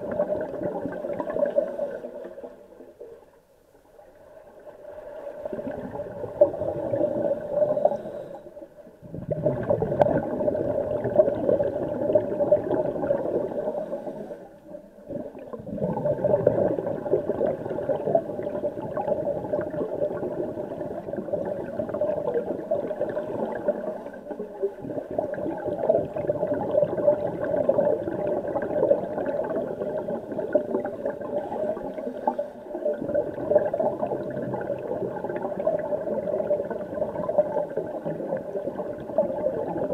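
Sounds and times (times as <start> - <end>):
underwater regulator bubbling: 9.0 - 14.2, 15.0 - 39.9.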